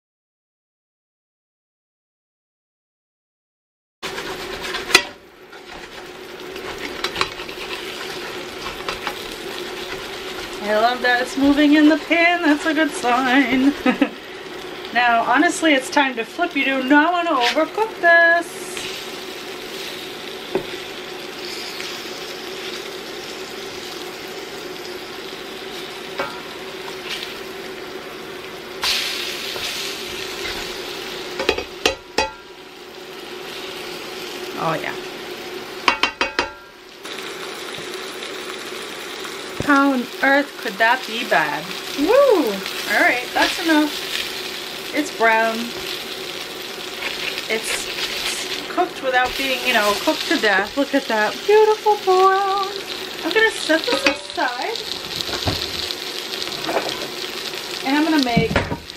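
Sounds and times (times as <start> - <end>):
spatula scraping and knocking pan: 4.0 - 13.8, 26.2 - 27.3, 28.8 - 32.4, 35.8 - 36.7, 46.9 - 51.0, 53.4 - 54.4, 56.5 - 57.2
liver sizzling in oil: 4.0 - 58.9
spatula tapping and scraping pan: 4.1 - 10.6, 26.2 - 26.5, 31.4 - 32.4, 35.8 - 36.7, 53.8 - 54.4.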